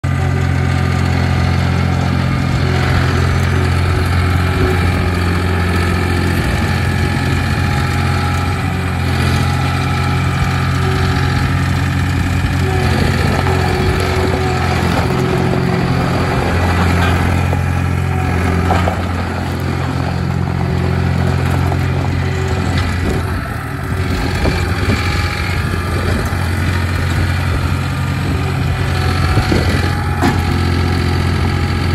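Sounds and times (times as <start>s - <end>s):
diesel engine running: 0.0s - 31.9s.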